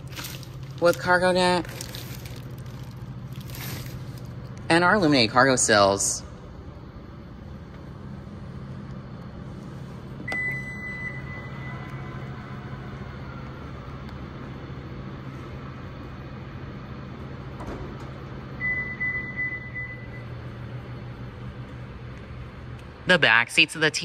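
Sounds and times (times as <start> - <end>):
faint motor whine: 0.0 - 24.0
steady low hum: 0.0 - 24.0
high warning beep: 10.3 - 11.7, 18.6 - 20.4.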